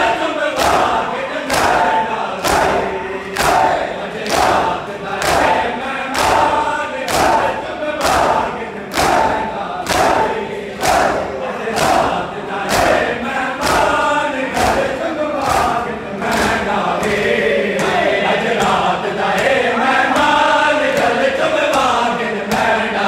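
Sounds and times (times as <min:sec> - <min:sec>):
crowd of men chanting: 0:00.0 - 0:23.0
hands slapping chests: 0:00.6 - 0:18.0.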